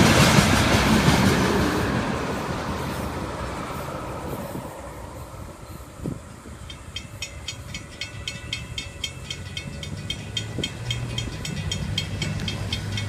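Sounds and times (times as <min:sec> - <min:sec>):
car engines humming: 0:00.7 - 0:13.0
crossing bell ringing rapidly: 0:05.8 - 0:13.0.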